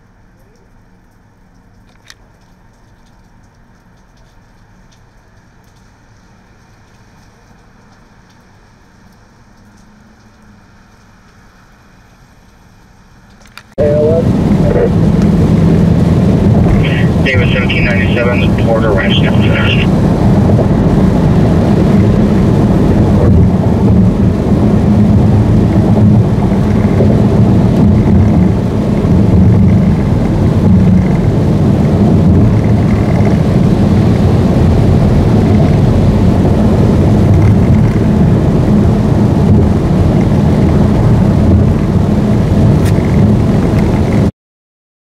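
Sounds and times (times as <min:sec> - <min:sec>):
car interior road noise: 0:13.6 - 0:44.3.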